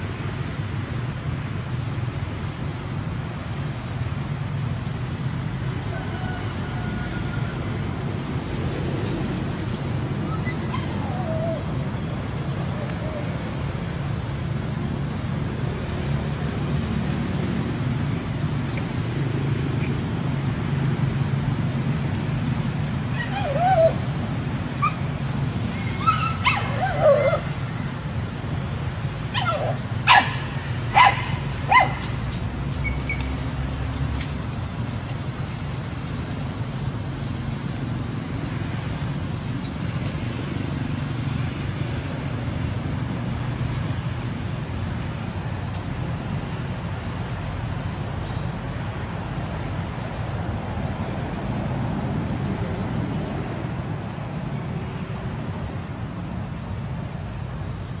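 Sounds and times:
puppy yelping: 25.8 - 27.5, 29.4 - 32.0
puppy barking sharply: 31.0 - 32.0.

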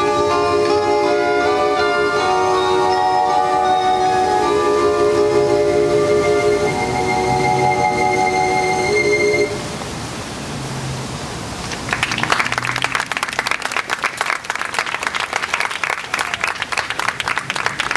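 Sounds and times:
audience applauding: 11.7 - 17.9.

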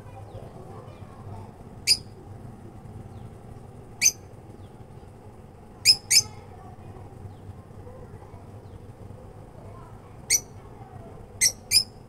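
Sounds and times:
low background hum: 0.0 - 12.0
lovebirds chirping: 1.8 - 2.2, 3.0 - 5.1, 5.8 - 6.4, 10.3 - 10.6, 11.4 - 12.0.

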